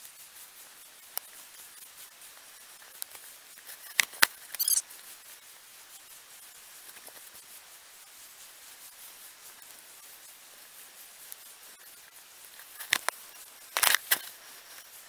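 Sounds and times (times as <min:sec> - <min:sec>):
camera clicks: 0:13.8 - 0:14.2
camera handling rattle: 0:13.8 - 0:14.2.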